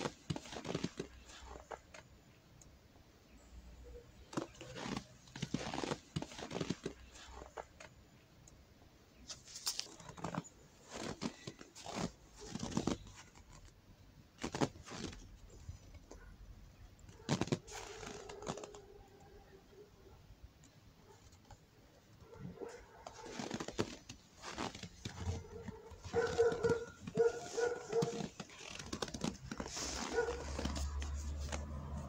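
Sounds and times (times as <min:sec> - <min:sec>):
footsteps crunching in snow: 0:00.0 - 0:01.8, 0:04.4 - 0:07.6, 0:09.3 - 0:13.4, 0:14.4 - 0:15.3, 0:17.2 - 0:18.8, 0:23.1 - 0:32.0.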